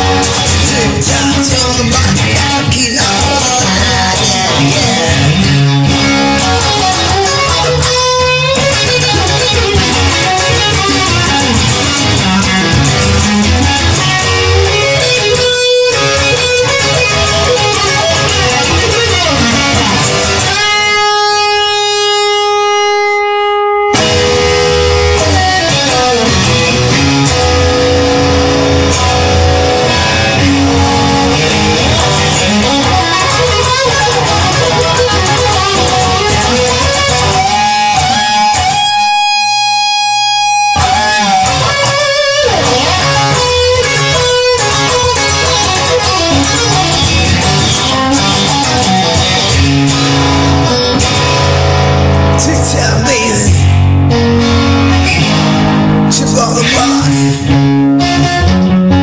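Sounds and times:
electric guitar band music: 0.0 - 59.0.

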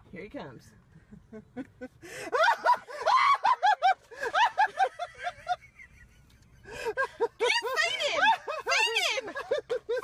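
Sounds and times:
woman squealing and laughing: 2.4 - 4.7, 7.4 - 10.0.

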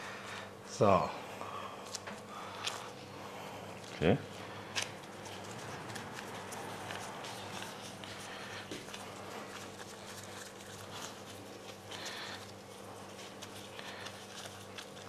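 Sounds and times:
low steady hum: 0.0 - 15.0
dough being kneaded: 3.9 - 15.0.

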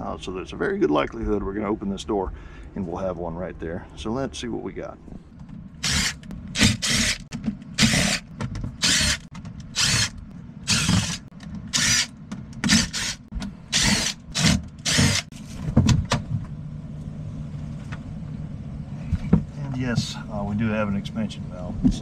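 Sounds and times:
steady low hum: 0.0 - 22.0
cordless drill bursts: 5.8 - 12.1, 12.7 - 15.3.

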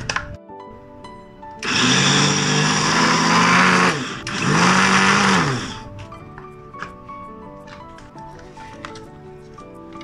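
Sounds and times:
electric blender motor grinding: 1.6 - 5.9.

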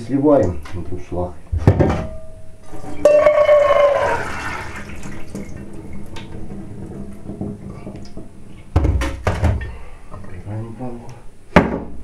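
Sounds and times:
ringing tone: 2.1 - 4.0
water pouring into sink: 3.5 - 6.4.

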